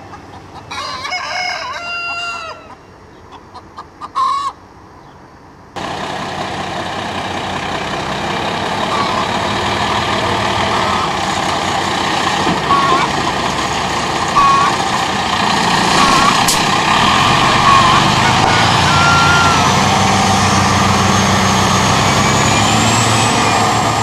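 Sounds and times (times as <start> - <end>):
chicken clucks: 0.0 - 5.2, 12.6 - 13.3
rooster crowing: 0.7 - 2.9, 16.0 - 19.9
diesel truck engine running: 5.8 - 24.0.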